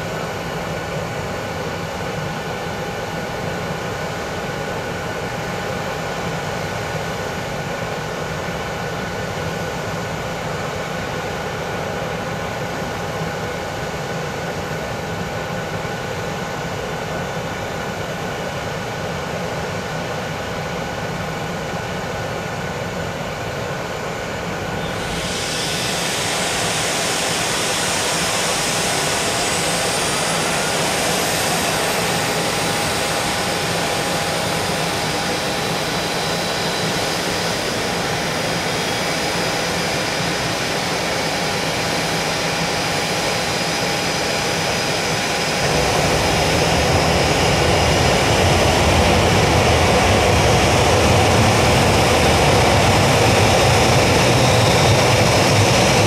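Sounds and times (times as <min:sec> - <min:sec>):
jet engine spooling up: 0:23.4 - 0:56.0.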